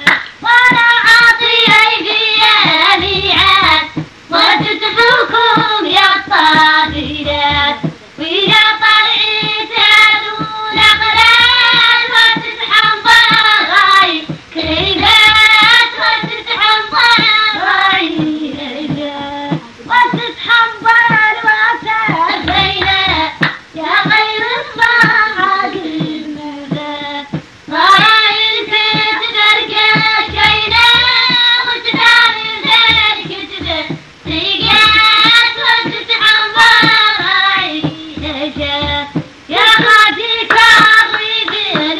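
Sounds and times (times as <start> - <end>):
low beats: 10.3 - 39.6.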